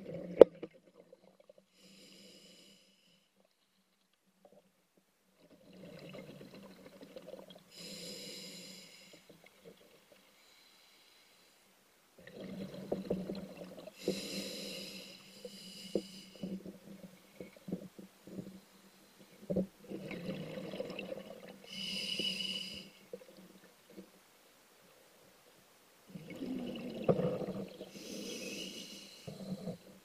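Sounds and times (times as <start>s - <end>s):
exhaled bubbles gurgling: 5.6s - 7.6s, 12.2s - 14.2s, 19.8s - 22.4s, 26.1s - 30.0s
regulator inhalation hiss: 7.7s - 9.3s, 14.0s - 16.4s, 21.7s - 23.0s, 27.9s - 29.4s.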